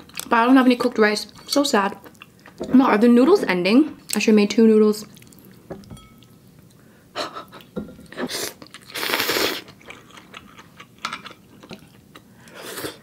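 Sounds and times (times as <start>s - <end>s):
chewing: 5.0s - 5.6s, 8.5s - 12.6s
slurping noodles: 8.2s - 9.7s.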